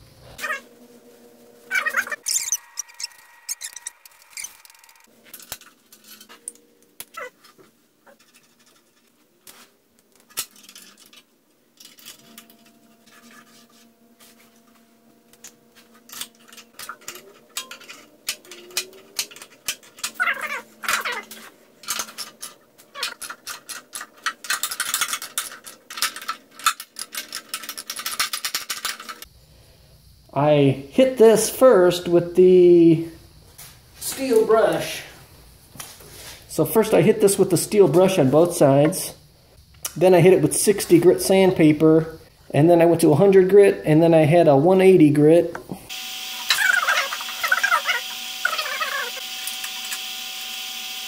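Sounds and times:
short wavering squeals: 0:01.7 - 0:05.1, 0:46.0 - 0:49.5
metal tools clinking: 0:01.7 - 0:07.3, 0:10.2 - 0:13.8, 0:15.4 - 0:29.3.

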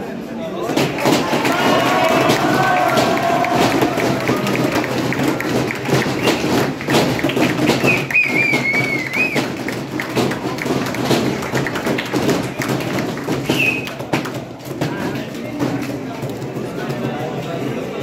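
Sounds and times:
crowd hubbub: 0:00.0 - 0:18.0
crowd clapping and thumping: 0:00.6 - 0:17.8
wavering whistle: 0:07.8 - 0:09.5, 0:13.5 - 0:14.0.

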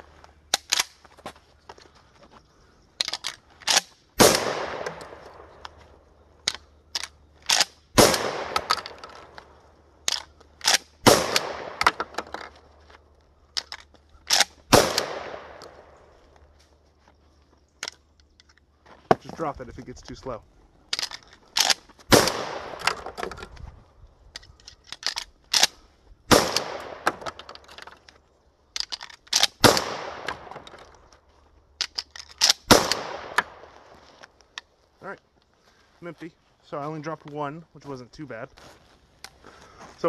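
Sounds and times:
shotgun pump racking clacks: 0:03.0 - 0:03.9, 0:06.4 - 0:07.8, 0:08.6 - 0:10.9, 0:11.8 - 0:14.6, 0:20.9 - 0:21.9, 0:24.3 - 0:25.8, 0:28.8 - 0:29.6, 0:31.8 - 0:32.7
shotgun shots with echo: 0:04.2 - 0:05.5, 0:08.0 - 0:08.8, 0:11.0 - 0:11.9, 0:14.7 - 0:15.6, 0:26.3 - 0:27.2.

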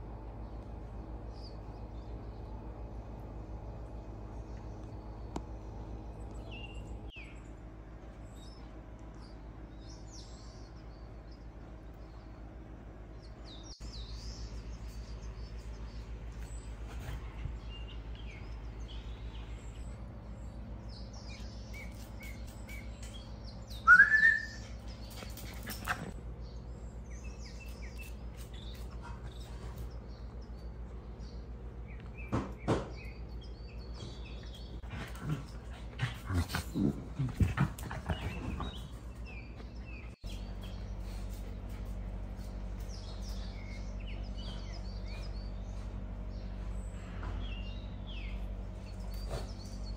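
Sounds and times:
faint birds chirping: 0:00.0 - 0:49.9
dog yipping: 0:23.9 - 0:24.6.

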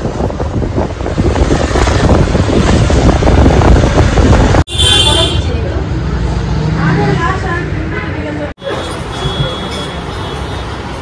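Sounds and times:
wind buffeting microphone: 0:00.0 - 0:04.7
road and engine rumble: 0:00.0 - 0:11.0.

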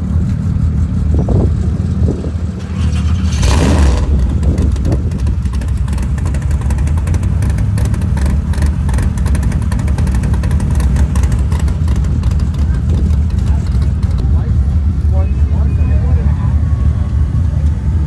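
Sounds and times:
truck engine low rumble: 0:00.0 - 0:18.0.

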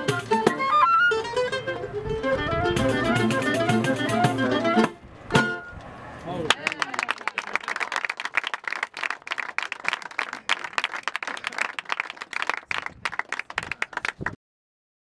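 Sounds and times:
audience applauding: 0:06.5 - 0:14.4.

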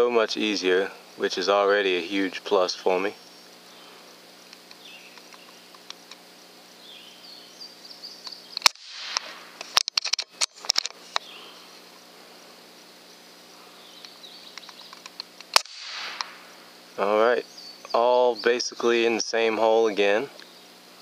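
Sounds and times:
air rifle shot cracking: 0:08.6 - 0:10.7, 0:15.5 - 0:16.5.

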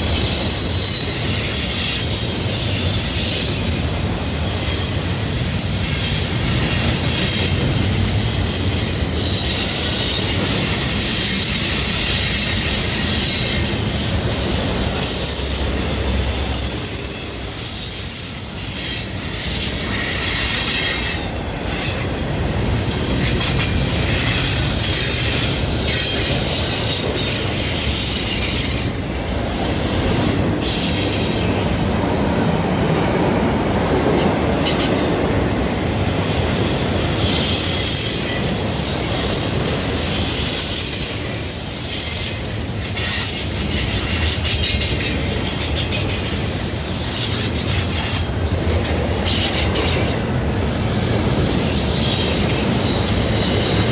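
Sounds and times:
freight train wheels rumbling: 0:00.0 - 0:53.9
wheel flange squeal: 0:06.8 - 0:29.8, 0:37.2 - 0:50.2.

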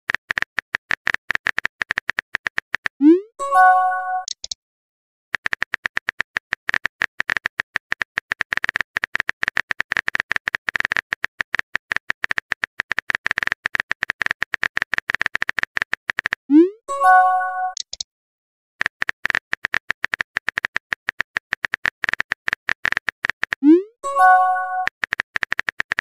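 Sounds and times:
notification chime: 0:03.0 - 0:04.3, 0:16.6 - 0:17.8, 0:23.7 - 0:24.9.

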